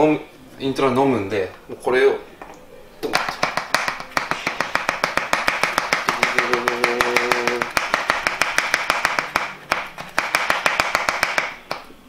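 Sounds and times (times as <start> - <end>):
fast light tapping on plastic: 3.1 - 11.8.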